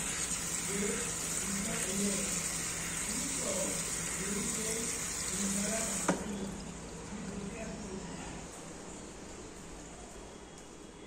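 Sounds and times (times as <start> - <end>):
tap water pouring into plastic tub: 0.0 - 6.7.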